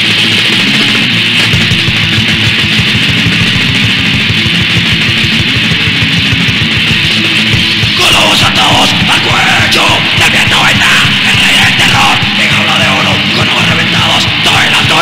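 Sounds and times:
distorted electric guitar riffing: 0:00.0 - 0:15.0
fast drumming: 0:00.0 - 0:15.0
person shouting vocals: 0:08.0 - 0:15.0.

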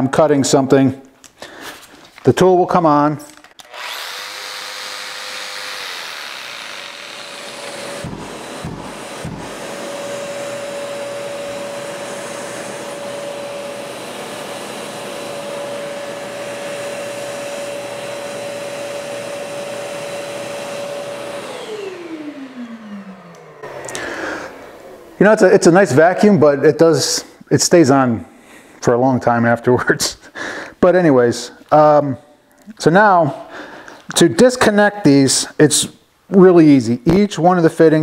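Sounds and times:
dust extractor motor humming: 0:03.6 - 0:26.4.

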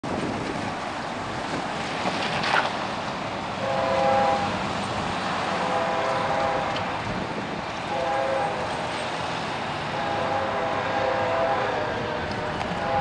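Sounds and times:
road traffic noise: 0:00.0 - 0:13.0
distant locomotive air horn: 0:03.6 - 0:04.6, 0:05.4 - 0:06.9, 0:07.9 - 0:08.9, 0:09.9 - 0:13.0.

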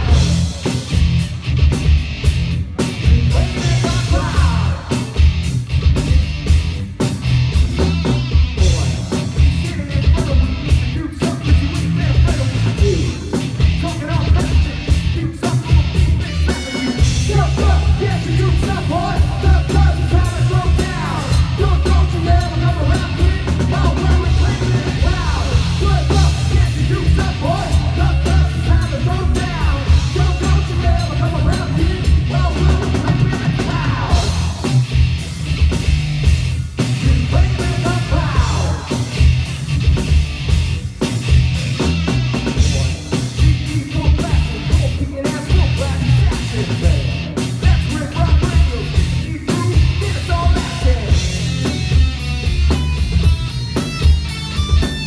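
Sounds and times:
bass guitar: 0:00.0 - 0:55.0
drum kit: 0:00.0 - 0:55.0
electric guitar: 0:00.0 - 0:55.0
person singing: 0:03.0 - 0:05.2, 0:08.6 - 0:34.8, 0:37.0 - 0:39.1, 0:42.5 - 0:51.3.

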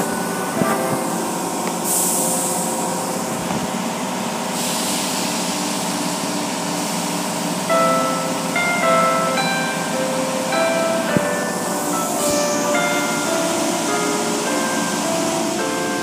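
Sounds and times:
high hiss of spray: 0:00.0 - 0:03.2, 0:04.5 - 0:05.8, 0:11.2 - 0:15.6
car wash water and machinery: 0:00.0 - 0:16.0.

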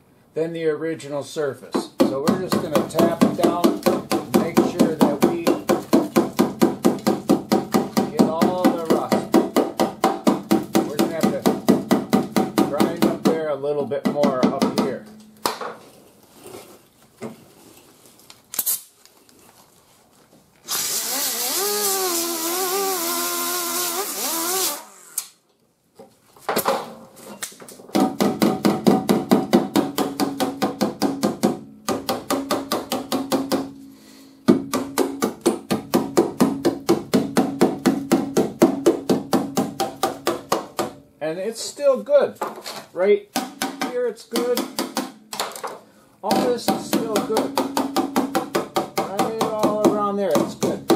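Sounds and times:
pneumatic air hammer on metal: 0:20.7 - 0:25.4.

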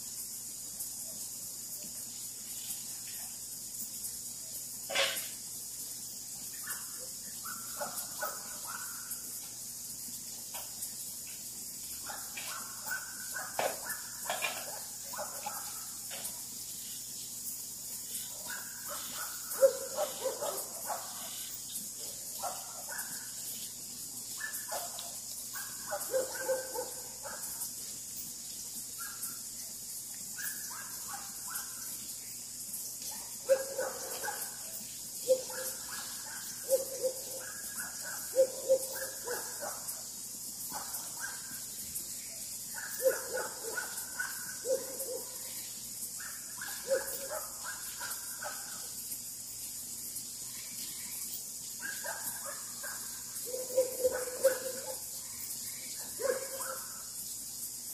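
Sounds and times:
high-pitched chorus of night animals: 0:00.0 - 0:57.9.

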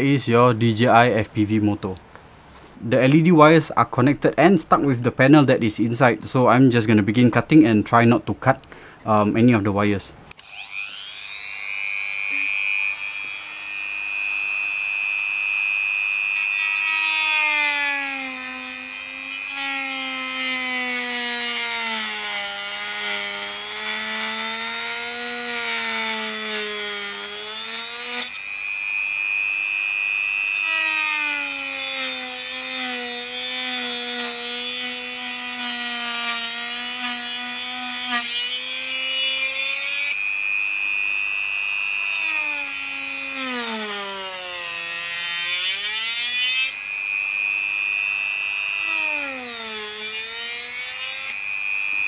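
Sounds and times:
cut-off disc rasping: 0:10.3 - 0:52.0
rotary tool motor whine: 0:10.4 - 0:52.0.

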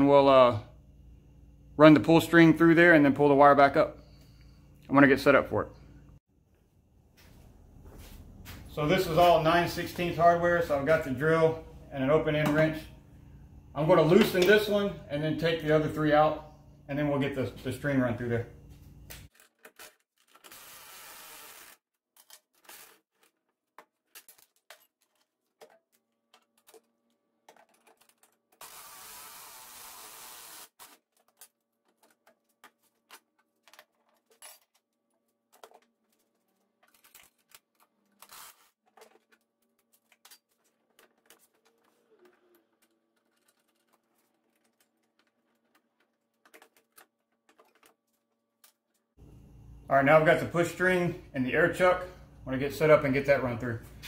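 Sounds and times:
cordless drill running: 0:20.5 - 0:21.8, 0:28.6 - 0:30.8, 0:38.2 - 0:38.7.

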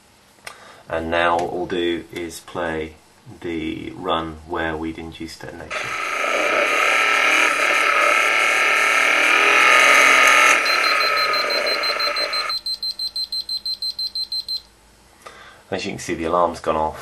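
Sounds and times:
dense mechanical noise: 0:01.0 - 0:12.7
rapid high beeping alarm: 0:09.0 - 0:14.7.

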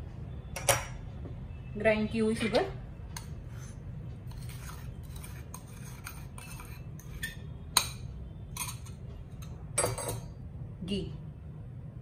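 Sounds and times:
low steady hum: 0:00.0 - 0:12.0
bowl clinking against steel bowl: 0:05.1 - 0:10.4.

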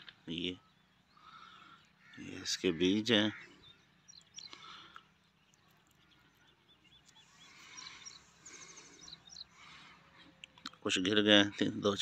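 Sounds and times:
distant birds chirping: 0:00.0 - 0:12.0
dry seed pod crackling: 0:04.1 - 0:09.0.

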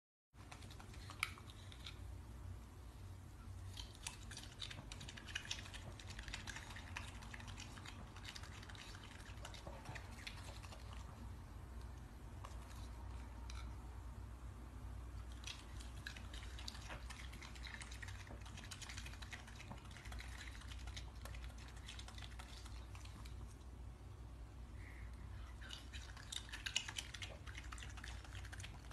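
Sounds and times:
low steady hum: 0:00.4 - 0:28.9
animal chewing wet smacking: 0:03.6 - 0:13.7, 0:15.2 - 0:23.8, 0:25.4 - 0:28.9.

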